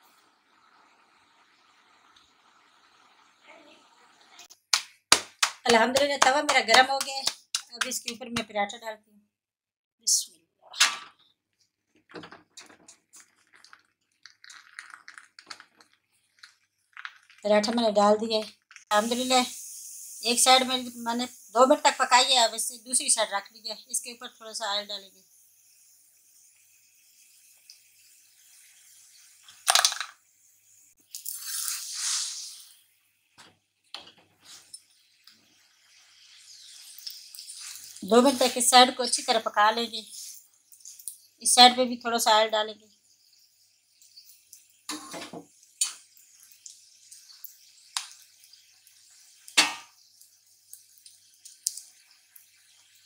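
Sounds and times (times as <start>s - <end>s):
oil sizzling on hot pan: 0.0s - 8.2s, 12.2s - 53.0s
dough crackling on hot griddle: 12.0s - 17.8s.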